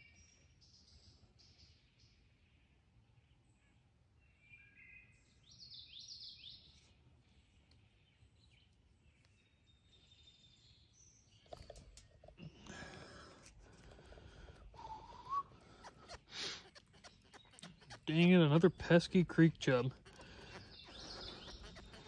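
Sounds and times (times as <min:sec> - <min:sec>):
songbirds chirping: 0:00.0 - 0:22.0
outdoor background hum: 0:06.6 - 0:22.0
rustling: 0:11.4 - 0:22.0.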